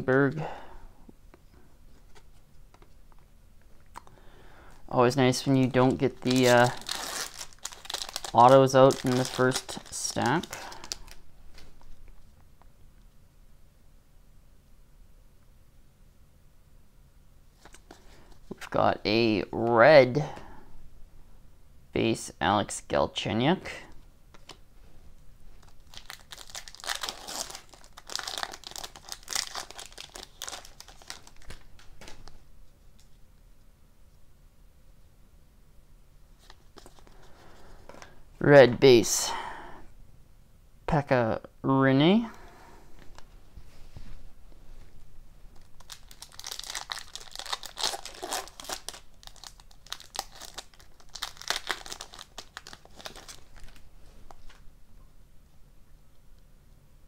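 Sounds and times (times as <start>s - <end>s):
foil wrapper crinkling and tearing: 6.1s - 11.2s, 25.6s - 32.2s, 45.5s - 53.8s.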